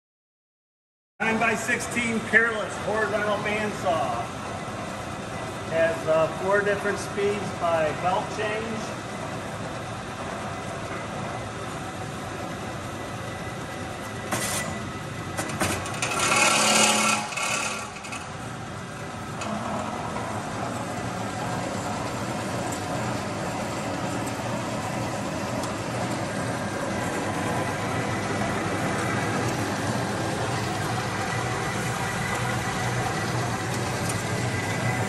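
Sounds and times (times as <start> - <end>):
bandsaw motor humming: 15.8 - 35.0
rattling hissing bandsaw: 16.0 - 18.0.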